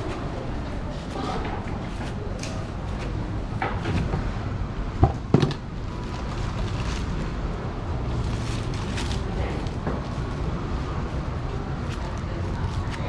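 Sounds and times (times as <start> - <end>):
plastic bag crinkling: 8.1 - 10.5.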